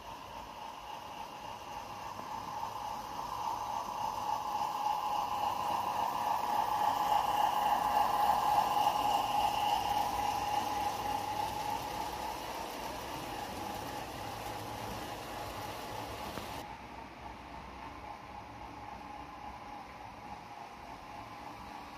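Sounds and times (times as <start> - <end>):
wheels on rails: 0.0 - 16.7
model train running gear whine: 0.0 - 21.9.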